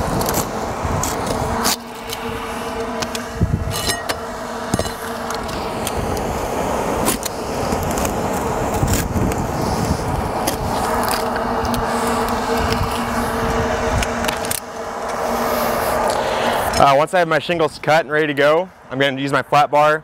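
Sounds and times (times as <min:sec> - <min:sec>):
knife scraping roof shingles: 0:07.0 - 0:13.2.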